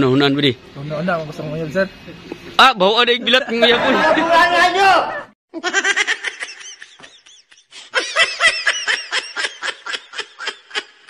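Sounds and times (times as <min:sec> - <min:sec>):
high-pitched squeaky laughter: 0:05.6 - 0:11.0.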